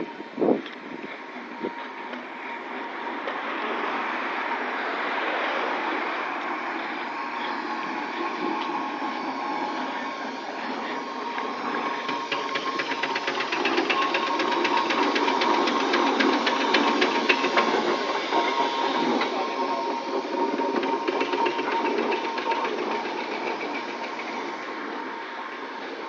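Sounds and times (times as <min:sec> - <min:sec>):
steam engine exhaust clatter: 0:00.0 - 0:26.0
car passing hiss: 0:01.6 - 0:26.0.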